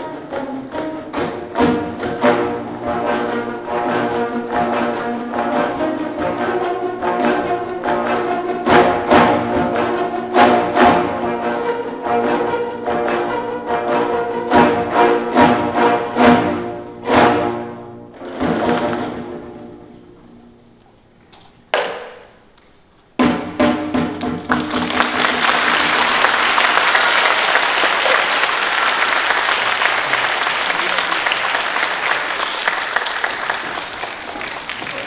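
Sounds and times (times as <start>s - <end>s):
audience applause: 24.4s - 35.0s.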